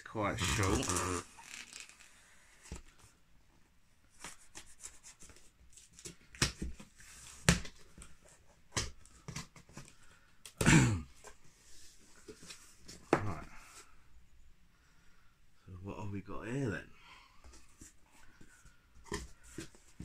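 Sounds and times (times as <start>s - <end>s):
creak-like sound: 0.4s - 2.2s.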